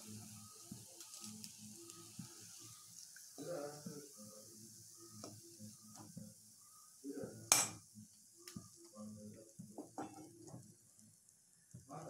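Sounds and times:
hot oil sizzling: 0.0s - 12.0s
spoon clinking against pan: 7.5s - 7.8s.

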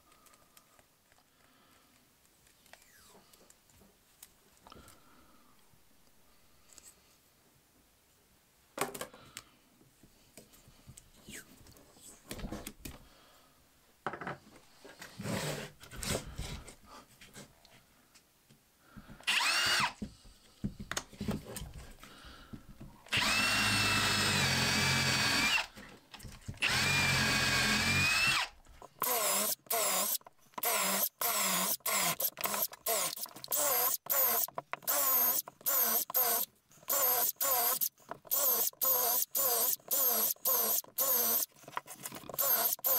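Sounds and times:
cordless drill boring into wood: 19.3s - 20.0s, 23.1s - 25.7s, 26.6s - 41.5s, 42.2s - 42.9s
handling clicks and knocks: 34.5s - 35.6s.

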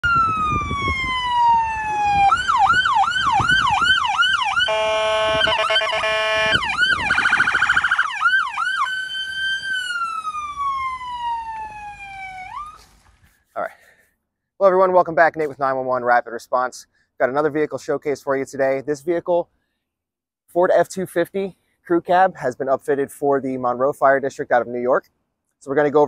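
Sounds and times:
electronic siren cycling tones: 0.0s - 12.8s.

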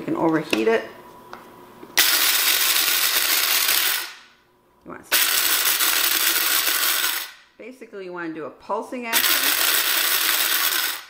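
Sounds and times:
coffee grinder grinding kernels: 2.0s - 4.2s, 5.1s - 7.4s, 9.2s - 11.0s.

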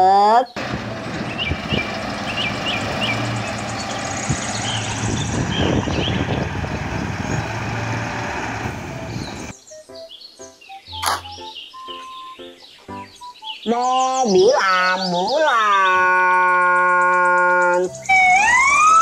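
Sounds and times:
dump truck diesel engine running: 0.6s - 9.5s.

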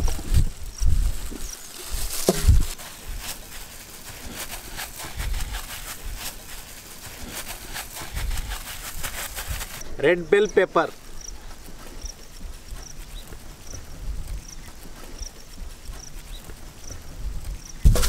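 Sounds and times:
dull low thuds: 0.0s - 3.2s, 11.6s - 18.0s
plastic gloves crackling: 0.0s - 18.0s.

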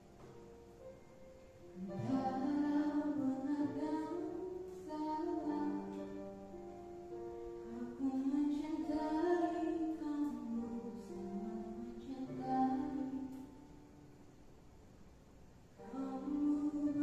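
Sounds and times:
girl singing into microphone: 1.8s - 6.2s, 7.7s - 13.6s, 15.8s - 17.0s.

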